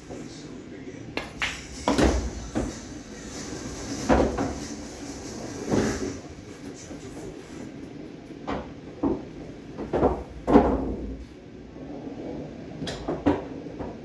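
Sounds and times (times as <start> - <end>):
pool balls clacking: 1.2 - 6.3, 8.3 - 11.3, 12.4 - 14.0.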